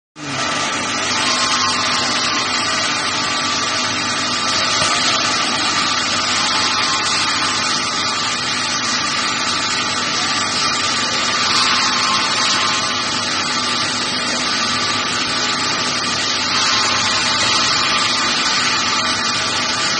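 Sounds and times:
faint machine hum: 0.2s - 19.9s
machine hiss: 0.3s - 19.9s.

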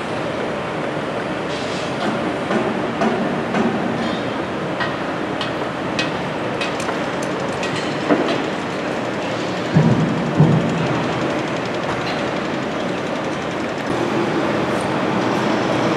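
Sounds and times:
construction site rumble: 0.0s - 15.9s
sharp knocks and clanks: 2.0s - 12.9s.

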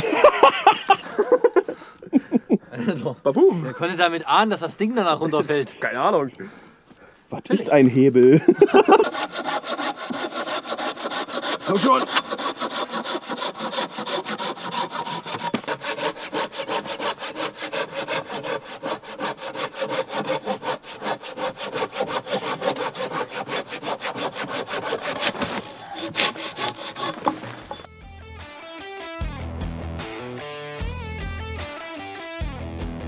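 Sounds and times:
hand saw cutting wood: 8.8s - 27.9s.

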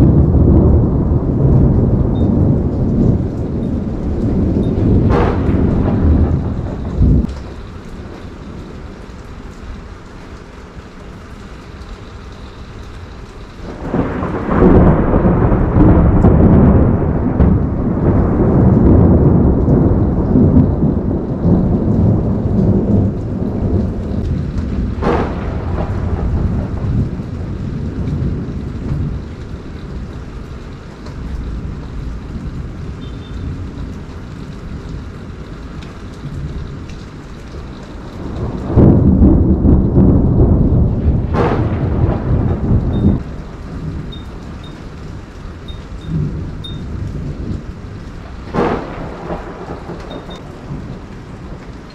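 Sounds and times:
sharp thunder crack: 0.0s - 7.3s, 13.7s - 29.3s, 38.2s - 44.3s, 46.0s - 51.6s
thunder rumbling: 0.0s - 10.4s, 12.6s - 51.9s
steady rain: 0.0s - 51.9s.

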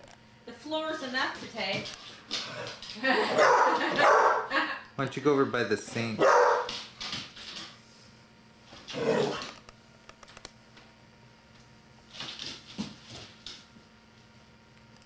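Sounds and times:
dog barking: 3.3s - 4.5s, 6.2s - 6.7s
claws clicking on hard floor: 6.6s - 7.8s, 12.1s - 13.7s.

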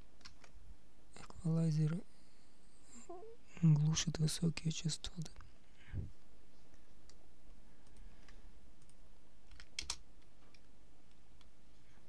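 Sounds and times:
low steady hum: 0.0s - 12.0s
computer keyboard clicks: 7.8s - 10.6s.

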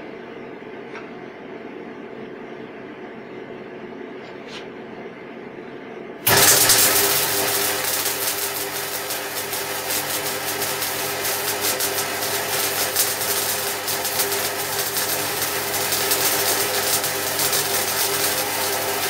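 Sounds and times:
steady hum: 0.0s - 19.0s
welding arc crackling: 6.3s - 19.0s.

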